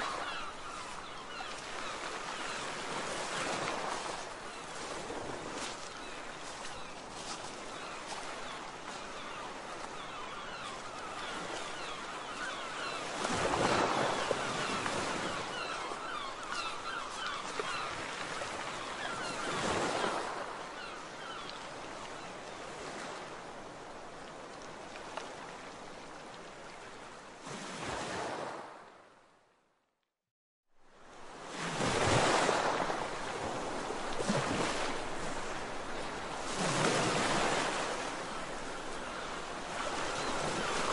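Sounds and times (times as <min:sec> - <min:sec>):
waterbird calls: 0:00.0 - 0:23.2, 0:32.1 - 0:40.9
small waves lapping on shore: 0:00.0 - 0:29.4, 0:30.8 - 0:40.9
wind: 0:00.0 - 0:30.1, 0:30.7 - 0:40.9.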